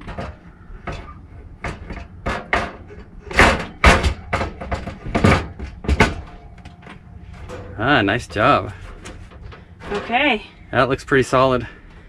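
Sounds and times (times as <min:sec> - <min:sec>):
metal case knocking on wood frame: 0:00.0 - 0:06.3.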